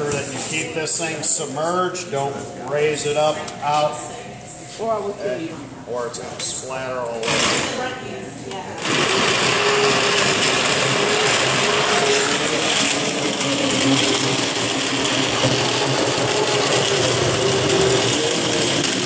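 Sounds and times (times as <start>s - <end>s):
immersion blender motor whine: 8.8s - 19.0s.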